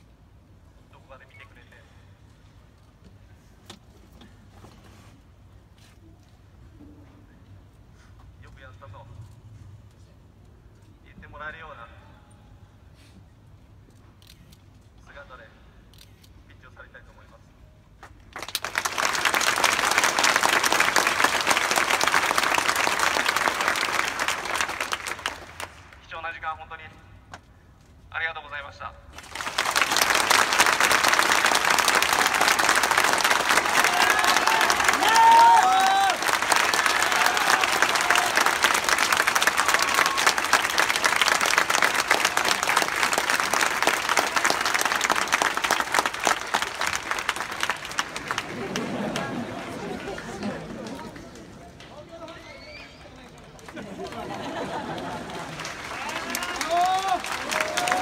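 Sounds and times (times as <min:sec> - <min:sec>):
crowd applauding: 0:18.3 - 0:26.0, 0:29.2 - 0:58.0.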